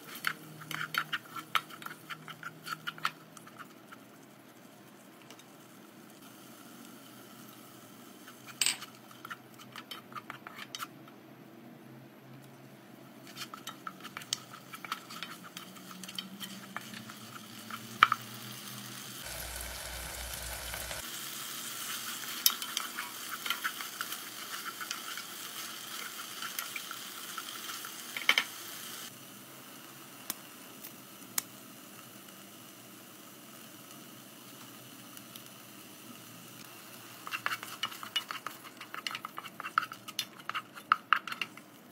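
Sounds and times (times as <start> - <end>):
steady sizzle: 0.0 - 10.4, 13.2 - 41.9
wooden spoon scraping pot: 37.2 - 41.6.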